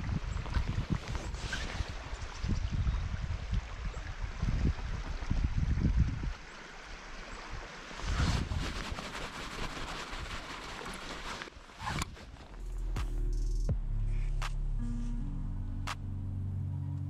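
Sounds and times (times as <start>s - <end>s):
wind rumble on microphone: 0.0s - 6.4s, 7.5s - 10.4s
river flowing over riffle: 6.3s - 12.6s.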